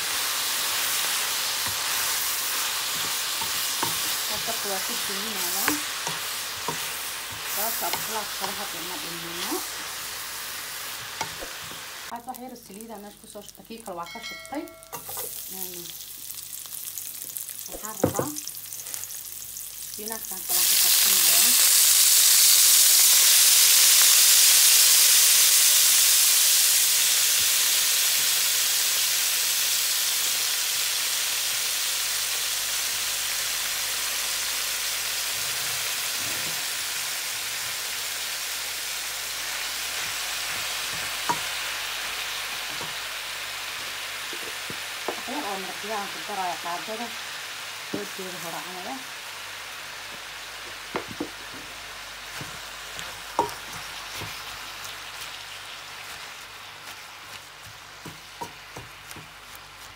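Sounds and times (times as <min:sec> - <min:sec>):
leaves sizzling in hot oil: 0:00.0 - 0:59.9
quiet frying: 0:00.0 - 0:59.9
knock against a pan: 0:17.9 - 0:18.4.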